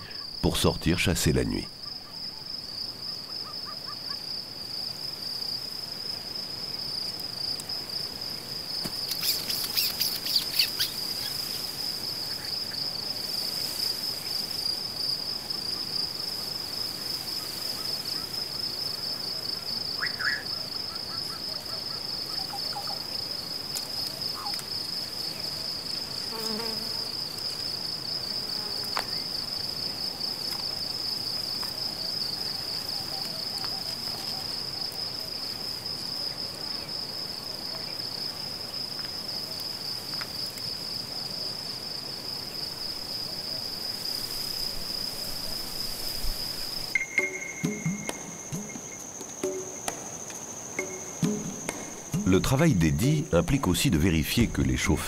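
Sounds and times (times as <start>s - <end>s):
insects trilling: 0.0s - 55.0s
faint bird chirps: 9.1s - 11.6s, 20.0s - 23.0s.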